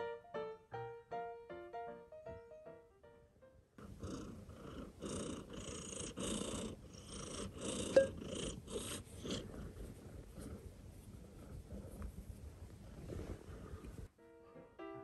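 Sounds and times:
cat purring: 3.8 - 14.1.

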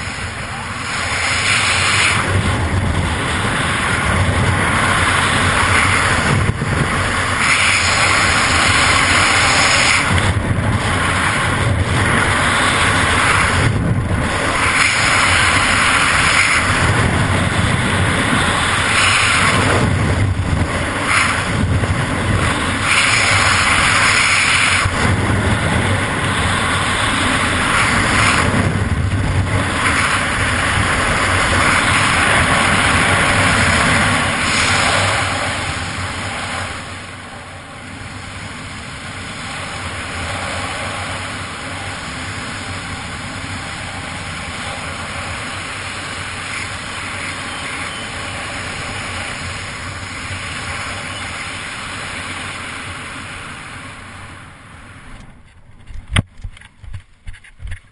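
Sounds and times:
wind buffeting microphone: 0.0 - 57.9.

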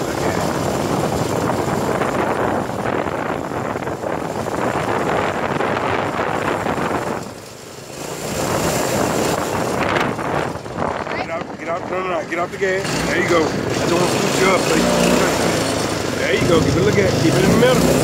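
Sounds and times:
wind on microphone: 0.0 - 12.2
go-kart engine running: 0.0 - 18.0.

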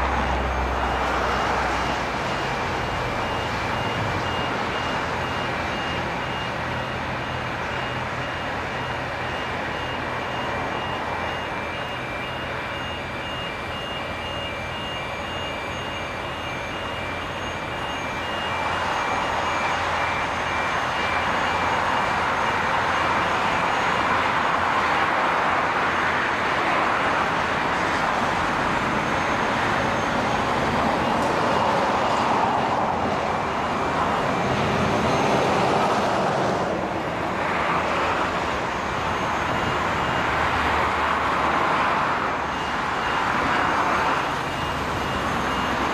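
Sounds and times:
construction machinery running: 0.0 - 45.9
warning beeper beeping: 0.0 - 45.9.

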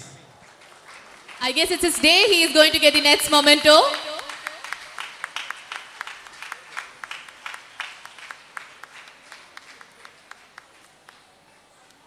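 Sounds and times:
audience applauding: 0.3 - 2.0, 3.9 - 11.5.

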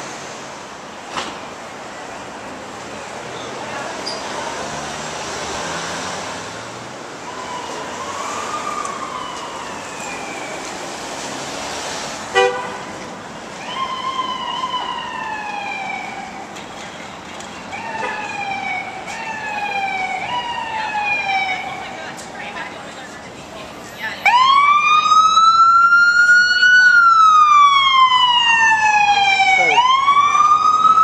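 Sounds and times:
street traffic: 0.0 - 31.0
emergency vehicle siren wailing: 7.2 - 11.8, 13.5 - 16.6, 17.7 - 22.2, 24.0 - 31.0
loud horn blast: 12.3 - 12.9.

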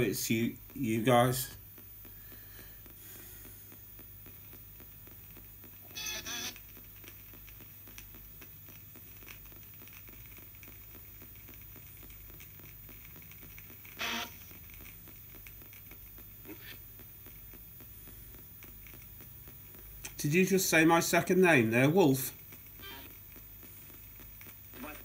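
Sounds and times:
snatch of radio broadcast: 0.0 - 5.2, 5.9 - 6.7, 13.4 - 14.8, 15.6 - 17.0, 20.0 - 25.0
faint radio ticks: 0.0 - 5.8, 6.4 - 25.0
radio hiss and hum: 0.0 - 25.0.

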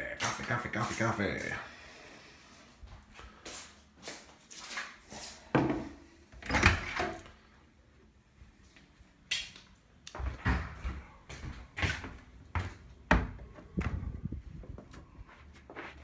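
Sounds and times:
footsteps: 0.1 - 1.6, 2.8 - 5.9, 8.6 - 16.0
knocks and thumps: 12.6 - 15.0.

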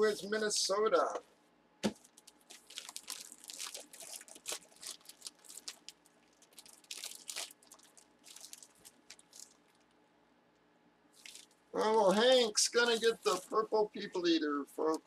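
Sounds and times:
packaging crinkling: 1.8 - 10.0, 11.2 - 11.6.

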